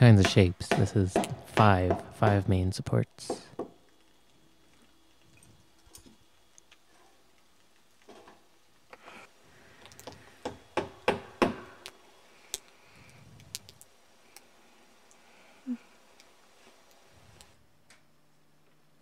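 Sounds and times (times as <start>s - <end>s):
hammering nails into wood: 0.2s - 2.5s, 3.3s - 3.8s, 10.4s - 11.8s.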